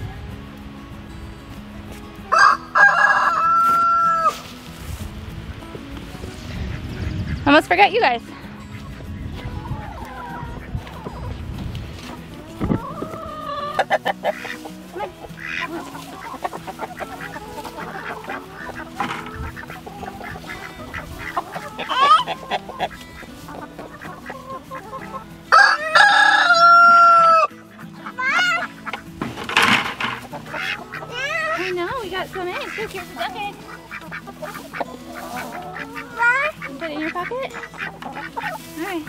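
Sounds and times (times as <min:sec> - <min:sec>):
hens clucking and squawking: 0:01.9 - 0:05.2, 0:06.0 - 0:39.0
loud hen call: 0:02.3 - 0:04.4, 0:12.8 - 0:14.7, 0:15.4 - 0:29.0.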